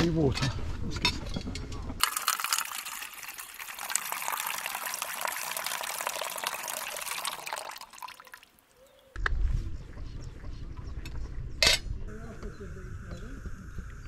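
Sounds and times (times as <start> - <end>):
water pouring into container: 2.0 - 8.7.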